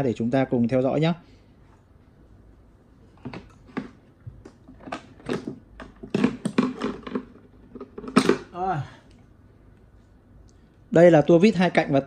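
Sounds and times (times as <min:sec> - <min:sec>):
tools clicking on plastic case: 0:03.3 - 0:08.5.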